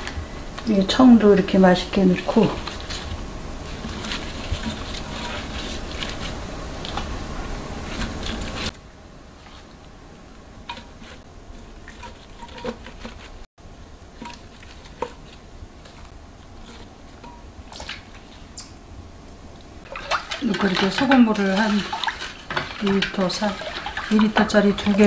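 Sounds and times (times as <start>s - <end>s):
vegetables squishing and rustling: 2.1s - 8.7s, 10.6s - 13.5s, 14.1s - 18.7s, 19.8s - 25.0s.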